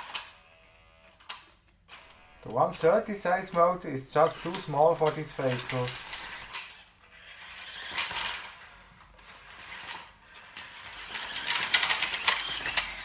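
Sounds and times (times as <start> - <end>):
electric motor whirring: 1.9 - 13.0
plastic bricks clattering: 4.2 - 6.6, 9.5 - 13.0.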